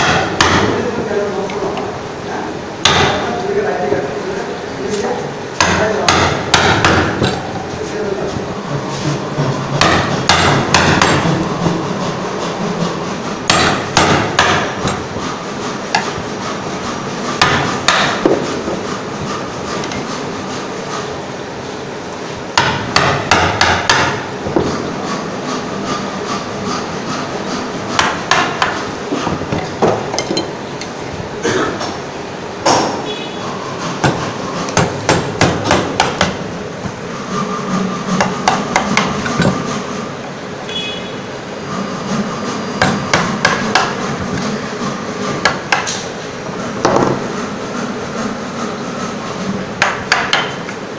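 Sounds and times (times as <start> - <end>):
mallet striking chisel into wood: 0.0 - 0.7, 2.8 - 3.2, 5.6 - 7.4, 9.8 - 11.2, 13.5 - 15.0, 17.4 - 18.5, 22.6 - 24.7, 28.0 - 30.5, 34.0 - 36.4, 38.2 - 39.6, 42.8 - 44.0, 45.4 - 46.0, 49.8 - 50.6.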